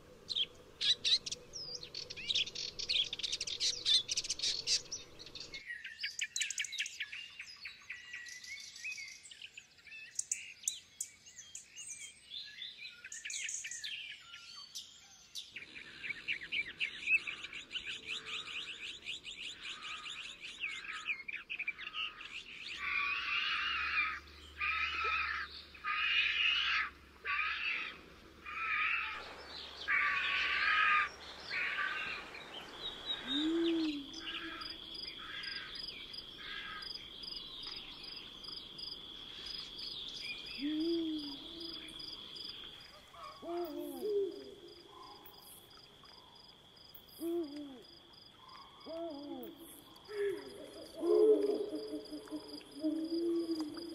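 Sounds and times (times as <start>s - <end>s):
songbird chirping: 0.0s - 53.9s
high insect trill: 28.5s - 43.0s
low owl-like hoot: 33.2s - 34.6s, 40.6s - 41.8s, 43.3s - 44.7s, 47.2s - 47.9s, 48.8s - 53.9s.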